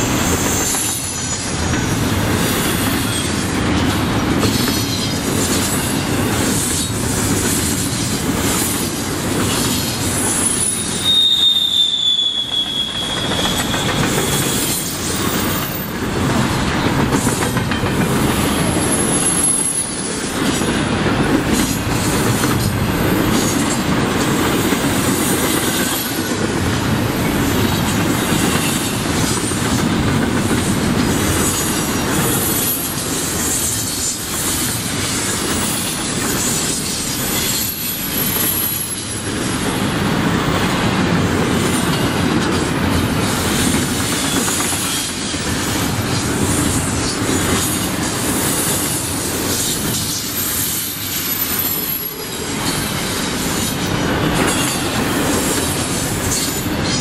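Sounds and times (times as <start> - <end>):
train wheels rumbling on rail: 0.0 - 57.0
high-pitched wheel squeal: 10.2 - 15.9
clicking over rail joints: 16.3 - 18.8.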